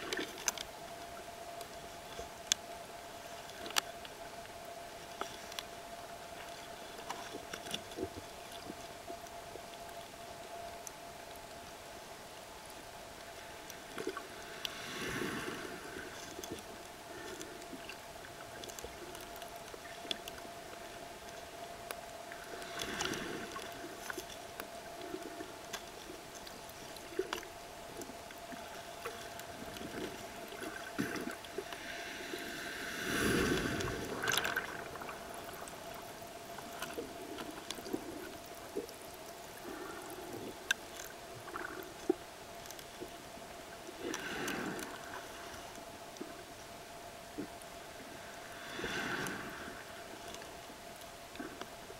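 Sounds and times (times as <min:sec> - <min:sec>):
steady faint tone: 0:00.0 - 0:51.9
underwater waves gurgling: 0:24.9 - 0:40.7.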